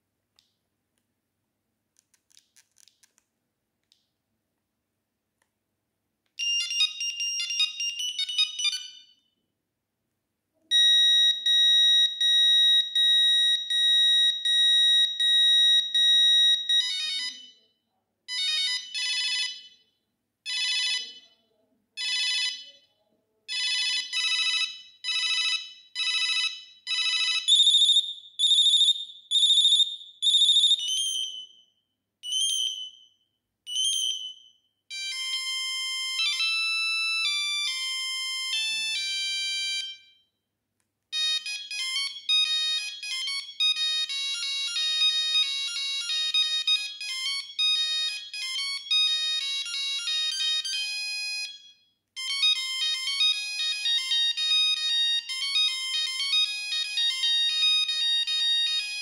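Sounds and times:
mobile phone ringtones: 6.4s - 9.2s, 10.7s - 17.6s, 18.3s - 19.8s, 20.5s - 21.3s, 22.0s - 22.8s, 23.5s - 28.1s, 34.9s - 40.2s, 41.2s - 59.0s.

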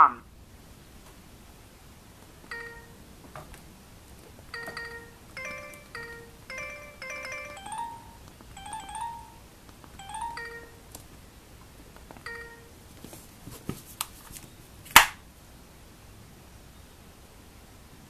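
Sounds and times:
electronic phone ringtone: 2.5s - 3.0s, 4.5s - 9.4s, 10.0s - 10.8s, 12.3s - 12.8s.

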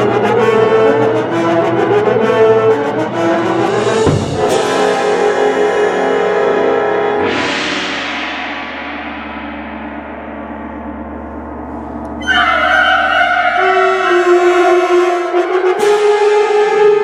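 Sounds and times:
wind band chords: 0.0s - 7.4s
gong stroke: 3.9s - 5.7s.

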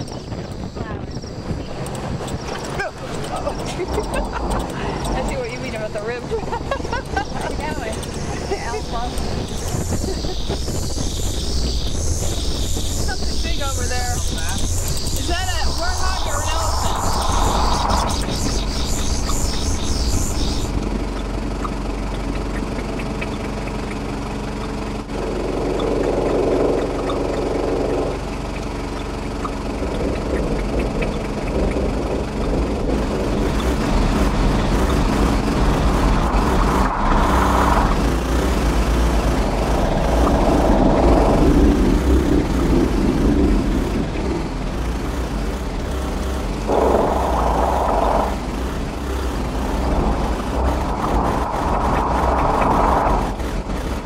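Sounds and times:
filtered noise: 0.0s - 28.3s, 29.6s - 54.0s
low hum: 0.0s - 54.0s
steady electronic tones: 1.8s - 21.2s, 33.3s - 54.0s.

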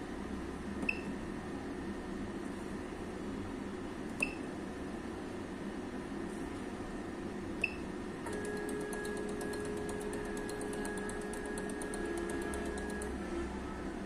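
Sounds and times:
motor whining with rapid ticking: 8.3s - 13.2s.

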